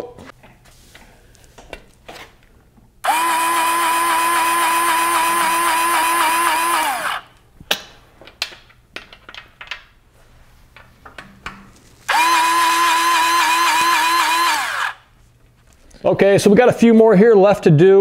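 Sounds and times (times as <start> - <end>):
electric grease gun motor whining: 3.0 - 7.3, 12.1 - 15.0.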